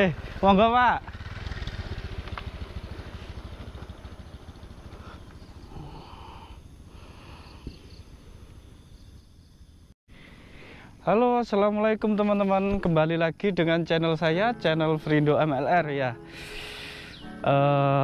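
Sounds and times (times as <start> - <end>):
motor scooter passing: 0.0 - 6.1.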